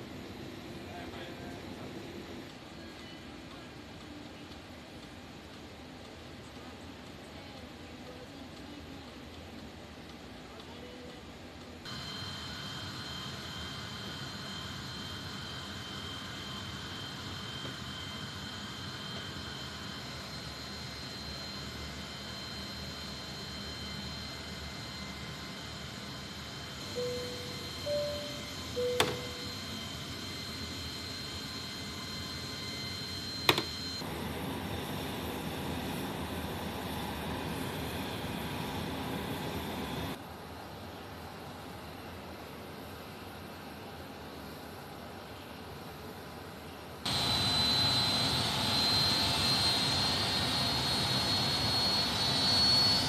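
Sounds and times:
high steady whining tones: 0:11.8 - 0:40.2, 0:47.1 - 0:53.0
jet engine rush: 0:11.9 - 0:40.2, 0:47.1 - 0:53.0
jet aircraft cabin hiss: 0:27.0 - 0:29.6.

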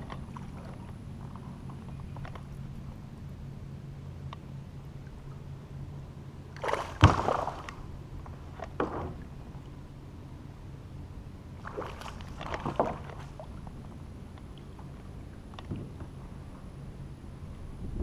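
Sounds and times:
fish splashing and thrashing: 0:06.5 - 0:07.9, 0:11.6 - 0:13.6.

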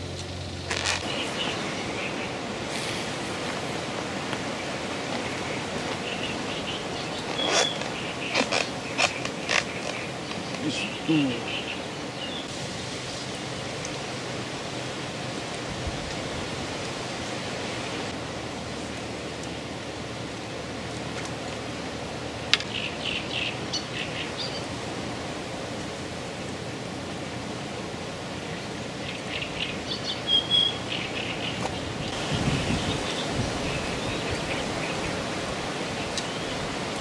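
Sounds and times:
outdoor background noise: 0:00.0 - 0:37.0
small birds chirping: 0:00.1 - 0:14.0, 0:22.4 - 0:24.8, 0:28.4 - 0:36.8.

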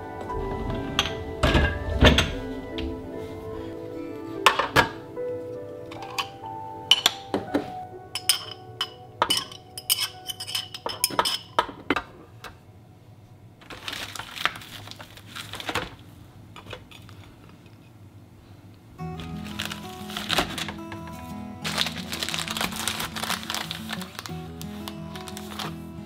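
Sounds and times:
gentle piano music: 0:00.0 - 0:14.1, 0:19.0 - 0:26.0
metal spoon clinking against glass: 0:08.2 - 0:11.6.

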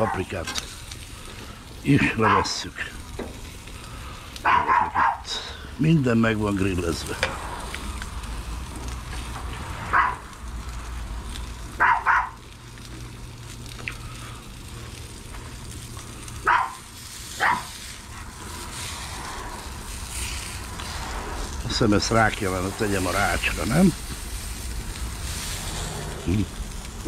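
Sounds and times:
dog barking: 0:00.0 - 0:00.3, 0:02.2 - 0:02.5, 0:04.4 - 0:05.3, 0:09.9 - 0:10.2, 0:11.8 - 0:12.4, 0:16.4 - 0:16.8, 0:17.4 - 0:17.7
gas grill rumble: 0:00.0 - 0:27.0
sausages sizzling on a grill: 0:00.0 - 0:27.0.

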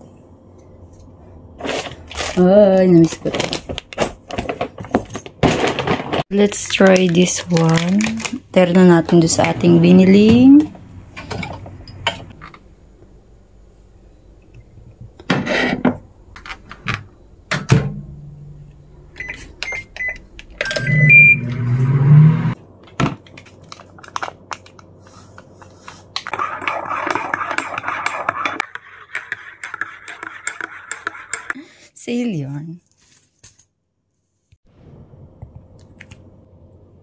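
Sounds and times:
sachet rustling: 0:06.6 - 0:08.5
microwave beeping: 0:14.4 - 0:22.5.

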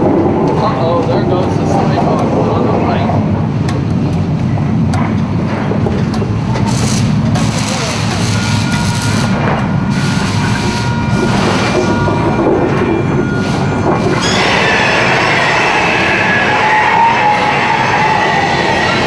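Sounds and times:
train running on rails: 0:00.0 - 0:19.0
metallic squealing: 0:06.8 - 0:19.0.

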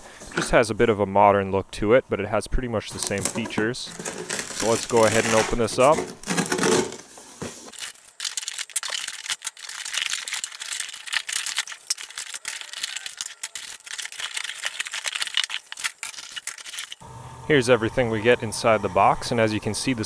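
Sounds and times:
cardboard and plastic rustling: 0:02.9 - 0:17.0.

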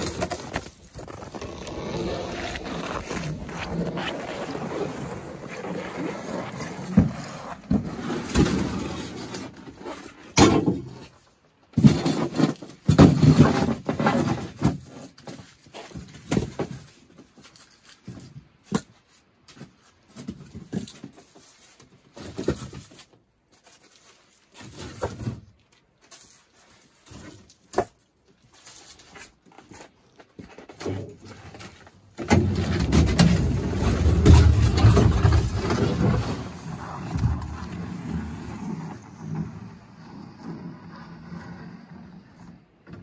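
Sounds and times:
sled scraping over snow: 0:00.0 - 0:10.4, 0:32.3 - 0:43.0.

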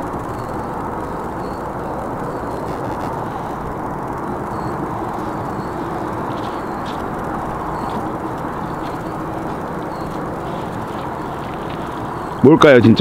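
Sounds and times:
faint high chirps: 0:00.0 - 0:12.6
outdoor background rumble: 0:00.0 - 0:13.0.

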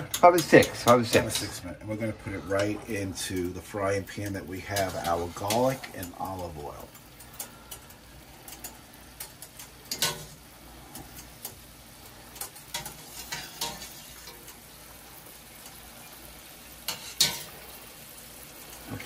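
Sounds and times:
wire skimmer clinking on pan: 0:00.0 - 0:01.6, 0:04.2 - 0:07.9, 0:08.5 - 0:11.6, 0:12.3 - 0:14.6, 0:16.9 - 0:17.6
vegetables sizzling in oil: 0:00.0 - 0:19.0.

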